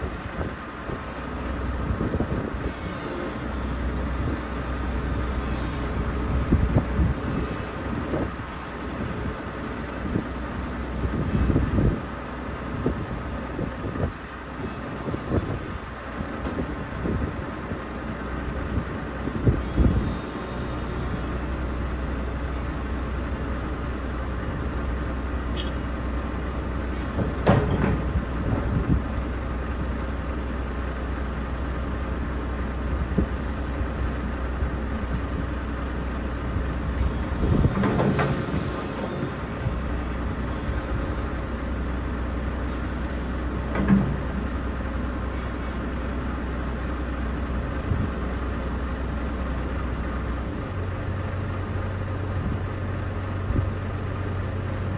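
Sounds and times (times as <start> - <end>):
diesel engine idling: 0.0 - 54.9
metallic clanks and creaks: 26.9 - 29.2, 37.0 - 41.4, 42.6 - 45.7
short hiss: 38.1 - 39.2.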